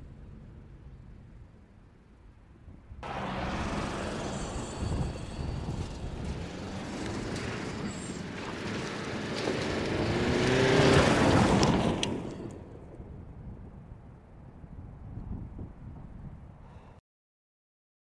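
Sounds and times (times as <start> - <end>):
tyres on loose dirt: 3.0 - 12.7
diesel engine pulling: 3.0 - 13.0.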